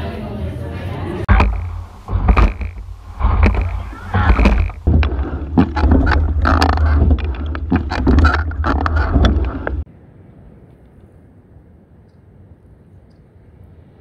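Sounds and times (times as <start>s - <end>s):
faint steady hiss: 1.3s - 5.5s
oars knocking: 1.3s - 9.9s
water splashing: 1.3s - 9.9s
wind rumble on microphone: 1.3s - 14.0s.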